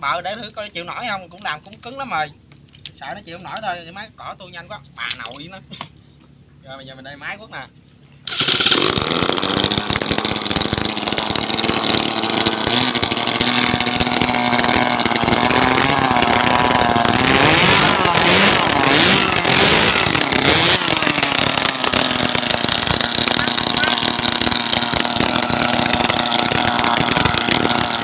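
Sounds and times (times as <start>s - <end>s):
small engine running: 8.2s - 28.0s
propeller churning water: 8.3s - 28.0s.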